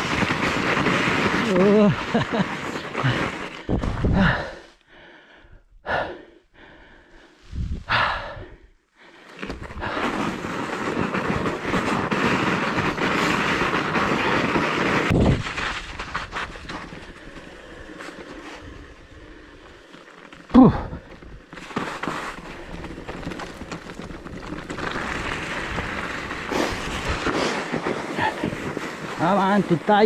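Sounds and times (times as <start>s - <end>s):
tyres rolling over gravel: 0.0s - 4.0s, 9.3s - 30.0s
bike tyres crunching over snow: 0.0s - 4.6s, 9.0s - 30.0s
heavy breathing: 3.0s - 10.2s.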